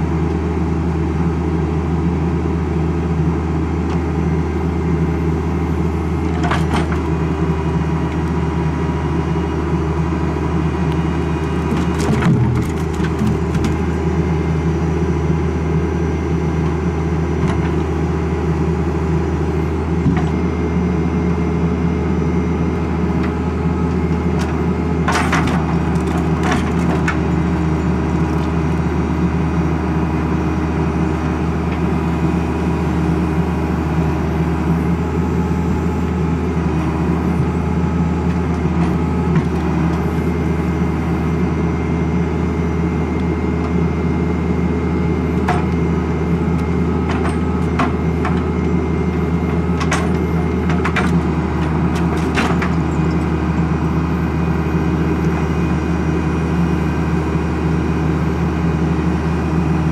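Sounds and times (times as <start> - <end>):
tractor diesel engine running: 0.0 - 59.9
wooden knocks of logs: 11.7 - 13.8.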